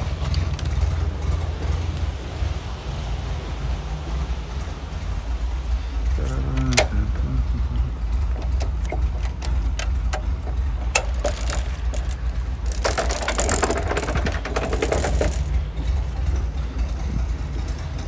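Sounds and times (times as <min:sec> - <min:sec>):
car engine idling: 0:00.0 - 0:18.0
metallic rattling and scraping: 0:08.0 - 0:18.0.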